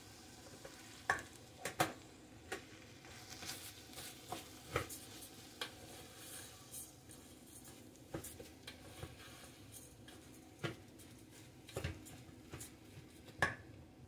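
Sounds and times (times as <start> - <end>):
spatula scraping in pot: 3.0 - 10.4.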